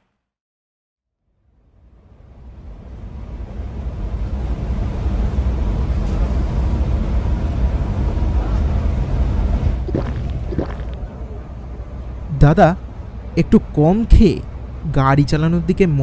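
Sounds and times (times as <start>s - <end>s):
truck engine rumbling: 8.9s - 12.5s.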